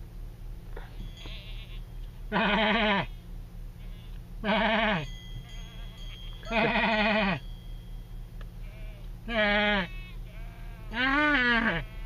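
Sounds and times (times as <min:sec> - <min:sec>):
steady low hum: 0:00.0 - 0:12.0
goats bleating: 0:01.2 - 0:03.2, 0:03.8 - 0:07.4, 0:08.6 - 0:12.0.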